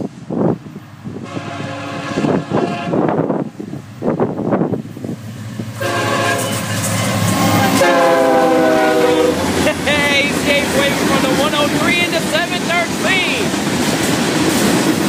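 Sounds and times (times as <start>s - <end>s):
locomotive air horn: 1.2s - 3.2s, 5.8s - 6.7s, 7.4s - 9.6s.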